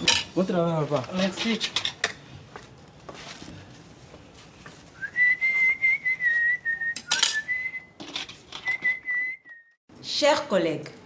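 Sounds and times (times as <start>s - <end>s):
dishes clattering: 0.0s - 0.4s, 7.0s - 8.6s
man whistling a tune: 5.0s - 8.0s, 8.6s - 9.8s.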